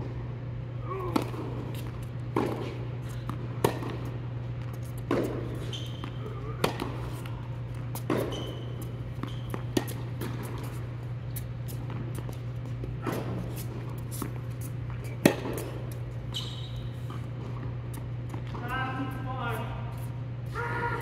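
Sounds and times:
steady low hum: 0.0 - 21.0
racket hitting ball: 1.0 - 10.8, 13.0 - 16.0
ball bouncing: 4.7 - 10.8
shoe squeaks: 5.4 - 7.4, 8.0 - 9.8, 16.2 - 17.3.

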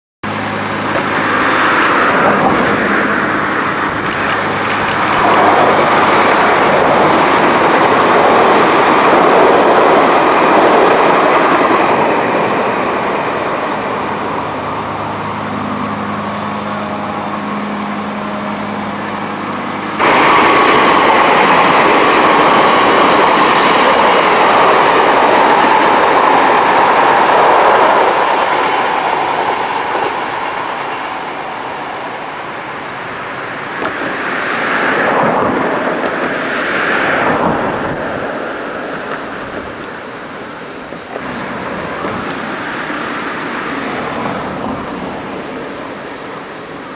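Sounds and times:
electric trains running past: 0.2 - 46.9
wheels clattering over rail joints: 0.6 - 14.1.

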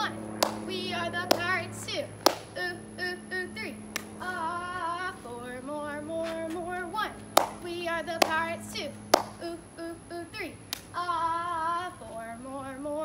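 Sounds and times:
sharp hand claps: 0.4 - 0.6, 2.3 - 2.5, 7.4 - 7.6, 8.2 - 8.4, 9.1 - 9.4
girl chanting a cheer: 6.3 - 12.0.

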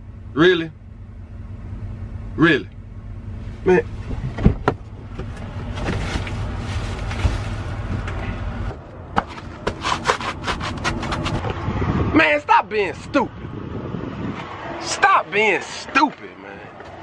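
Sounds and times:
hands rummaging in truck cab: 4.0 - 11.4.

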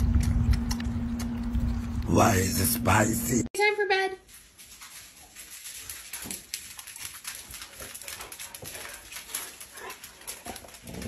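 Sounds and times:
dog claws clicking on a floor: 4.3 - 11.0.

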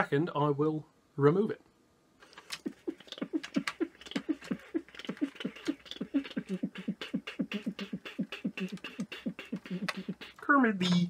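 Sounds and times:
man making beatbox mouth sounds: 2.2 - 11.0.

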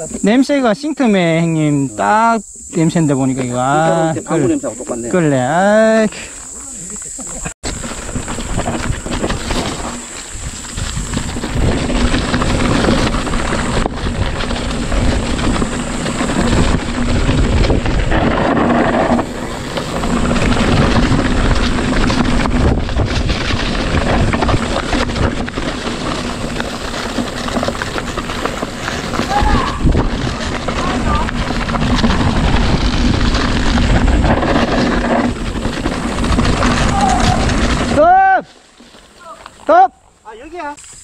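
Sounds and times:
tyres rolling over dirt: 2.8 - 41.0
wind rushing over microphone: 7.6 - 38.0.

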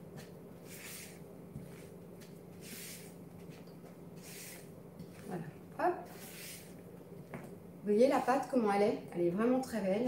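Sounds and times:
spatula swishing in batter: 0.6 - 4.7, 6.0 - 6.8.

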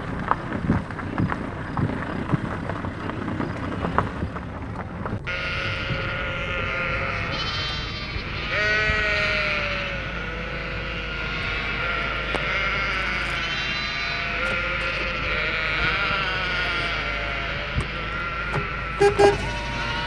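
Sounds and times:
sheep bleating: 5.3 - 20.0.

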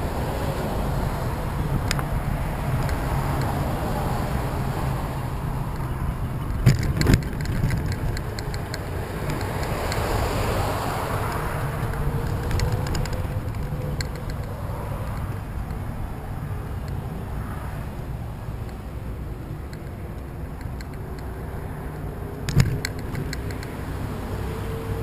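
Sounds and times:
wheels rolling on asphalt: 0.0 - 25.0
light ticks: 6.6 - 15.8, 19.6 - 23.8.

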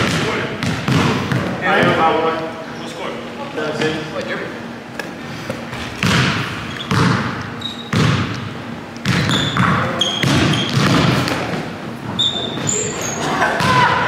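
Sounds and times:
basketball bouncing on hardwood: 0.0 - 1.6, 6.0 - 8.4, 9.0 - 11.2
sneaker squeaks: 5.6 - 14.0.

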